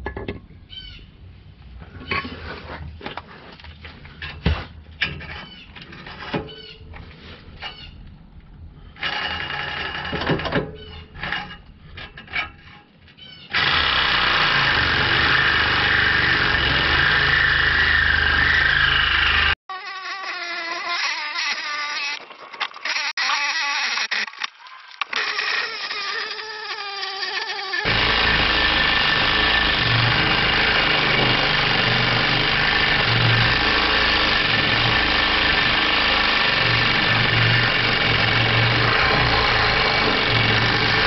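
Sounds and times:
reciprocating saw cutting metal pipe: 0:13.6 - 0:22.2, 0:25.2 - 0:41.0.

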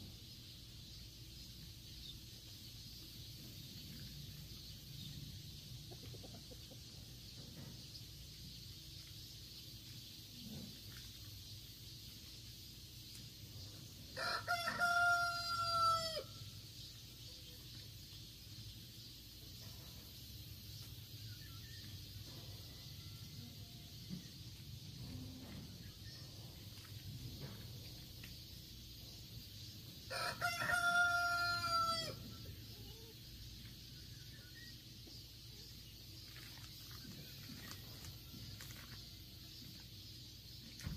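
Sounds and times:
rooster crowing: 0:14.2 - 0:16.4, 0:30.1 - 0:32.2.

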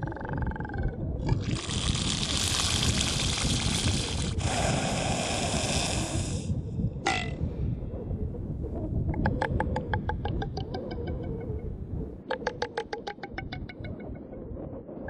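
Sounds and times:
seal hissing: 0:01.4 - 0:06.6.

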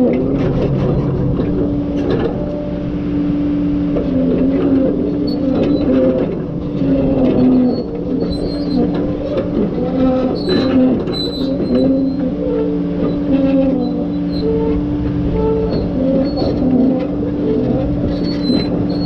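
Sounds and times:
diesel engine running: 0:00.0 - 0:19.0
short high squeaks: 0:04.6 - 0:06.2, 0:07.0 - 0:08.9, 0:09.9 - 0:19.0.

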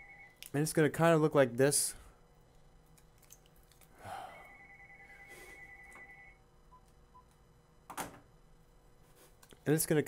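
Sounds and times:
warbling electronic ringing tone: 0:00.0 - 0:00.4, 0:04.2 - 0:06.4.

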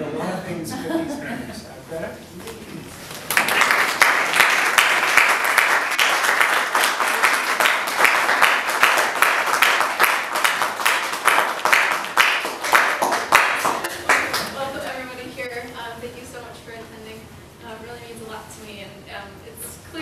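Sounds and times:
audience applauding: 0:03.2 - 0:14.8.

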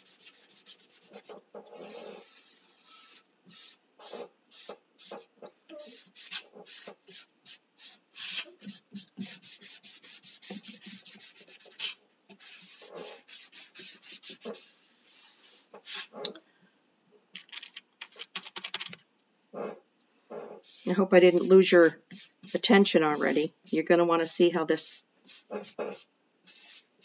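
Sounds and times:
wipe rubbing on wood: 0:00.0 - 0:16.1.

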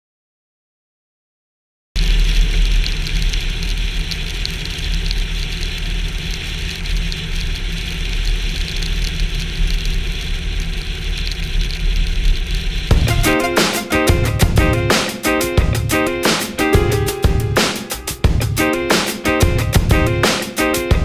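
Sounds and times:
even hiss: 0:08.4 - 0:21.0.

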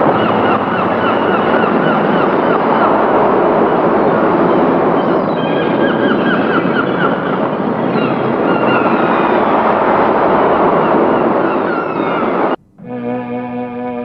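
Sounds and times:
sea waves: 0:00.0 - 0:12.6
wind: 0:00.0 - 0:14.0.

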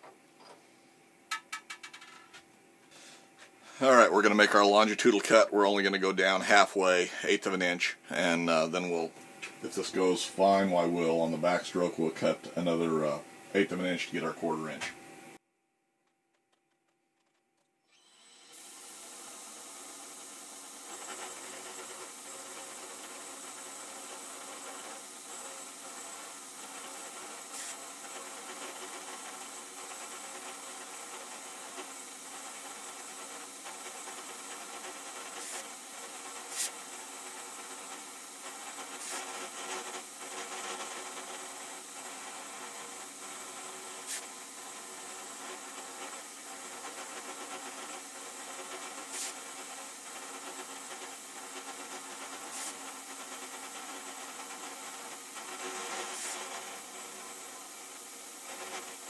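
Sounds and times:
milling machine cutting steel: 0:17.9 - 0:59.0.

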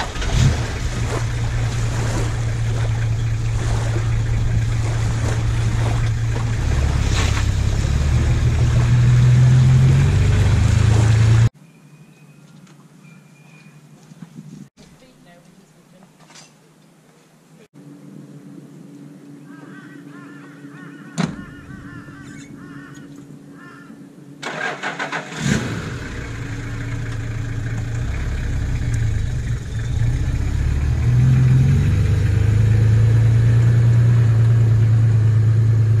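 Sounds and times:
vehicle engine running: 0:00.0 - 0:11.5, 0:24.6 - 0:36.0
car door shutting: 0:21.2 - 0:21.6
engine starter cranking: 0:24.4 - 0:25.8.

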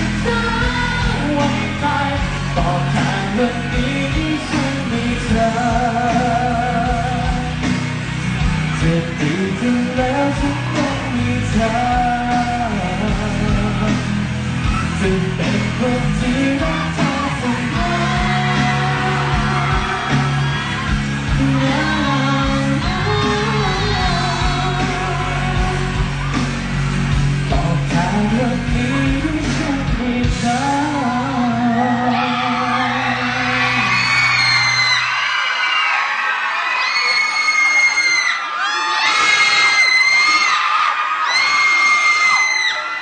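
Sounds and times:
man singing pop song: 0:00.0 - 0:07.8, 0:08.6 - 0:20.6, 0:21.2 - 0:26.4, 0:27.4 - 0:35.0.

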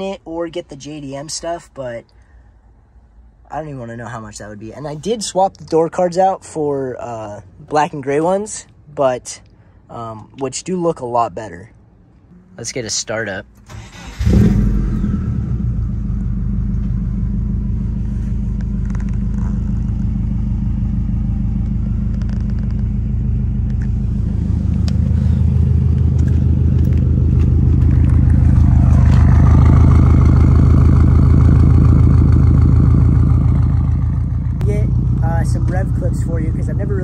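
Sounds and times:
car engine idling: 0:13.5 - 0:37.0.

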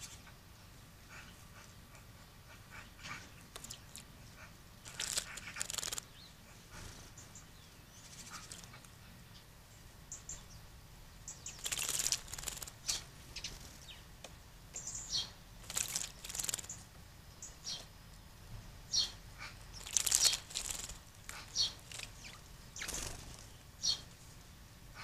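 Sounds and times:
bird splashing water with wings: 0:04.9 - 0:06.0, 0:11.6 - 0:12.8, 0:15.6 - 0:16.7, 0:19.8 - 0:23.4
high bird chirps: 0:11.3 - 0:14.1, 0:14.8 - 0:17.9, 0:18.9 - 0:24.1.

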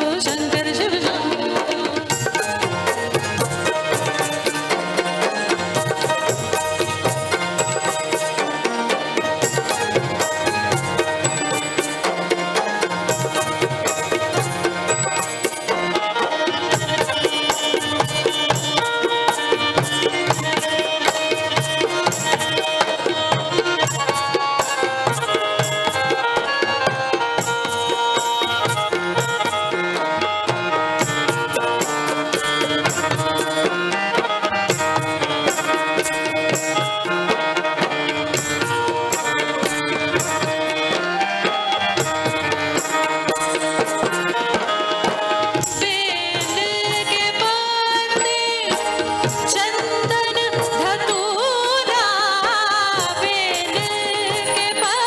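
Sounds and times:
woman singing: 0:00.0 - 0:03.2, 0:45.5 - 0:55.0
sustained melody instruments: 0:00.0 - 0:55.0
tabla rhythm: 0:00.0 - 0:55.0.

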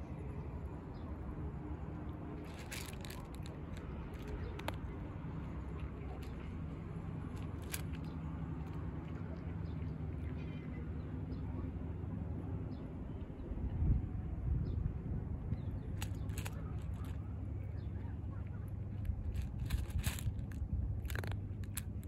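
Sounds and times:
low background hum: 0:00.0 - 0:22.0
cat crunching dry kibble: 0:02.3 - 0:08.9, 0:15.9 - 0:17.2, 0:18.4 - 0:22.0.

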